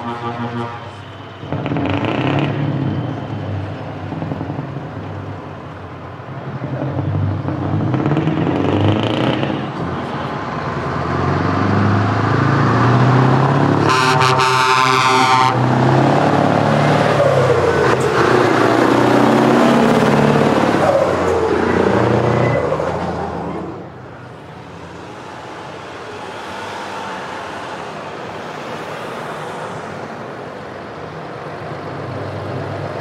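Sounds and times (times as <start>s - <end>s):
truck horn blast: 0.0s - 2.6s, 13.8s - 15.8s
quieter traffic: 0.0s - 33.0s
diesel truck engine under load: 1.4s - 33.0s.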